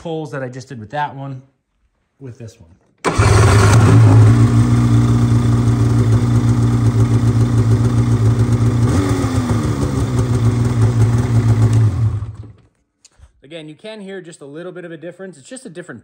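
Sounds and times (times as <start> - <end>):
snowmobile engine idling: 3.1 - 12.6.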